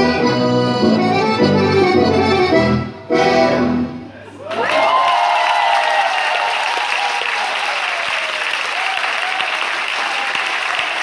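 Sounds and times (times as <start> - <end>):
shouted cheers: 4.3 - 11.0
audience applauding: 4.4 - 11.0.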